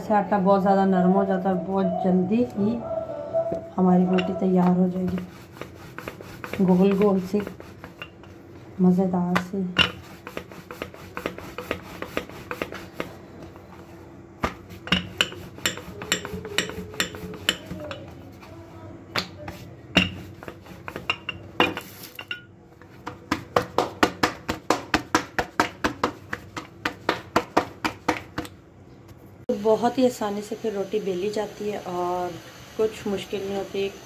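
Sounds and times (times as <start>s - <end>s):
rolling pin knocking on wooden board: 4.1s - 8.4s, 22.8s - 28.5s.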